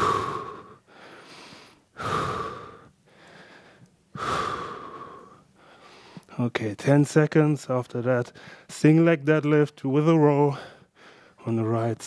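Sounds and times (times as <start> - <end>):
man breathing hard: 0.0 - 6.3, 8.3 - 8.7, 10.5 - 11.4.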